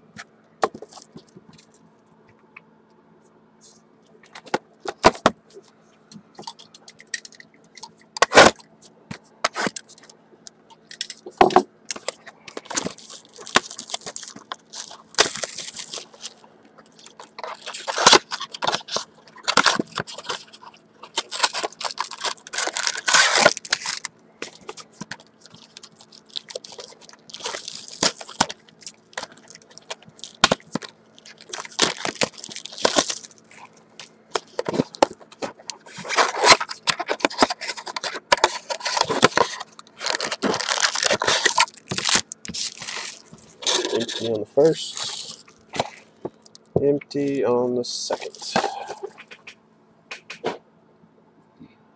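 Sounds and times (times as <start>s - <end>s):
plastic wrap crinkling and tearing: 11.9s - 46.7s, 48.2s - 49.2s.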